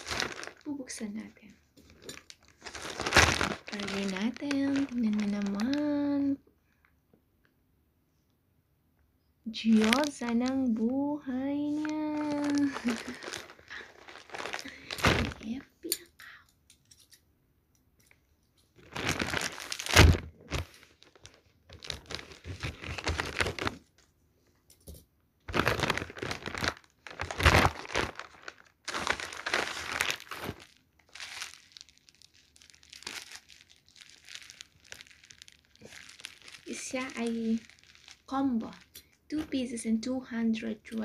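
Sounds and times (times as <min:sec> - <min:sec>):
plastic packaging crinkling: 0:00.0 - 0:06.4, 0:09.5 - 0:16.0, 0:18.8 - 0:24.0, 0:25.5 - 0:39.8.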